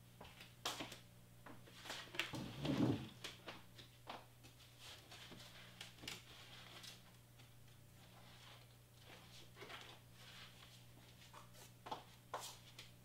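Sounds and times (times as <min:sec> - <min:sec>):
low electrical hum: 0:00.0 - 0:13.0
light clicks and rustles of handling: 0:03.1 - 0:13.0.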